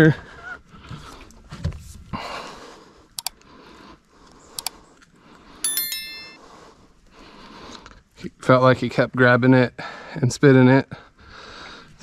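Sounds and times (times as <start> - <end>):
sharp clicks: 3.2 - 3.4, 4.6 - 4.8
high ringing chirp: 5.6 - 6.5
person breathing hard: 11.1 - 12.0.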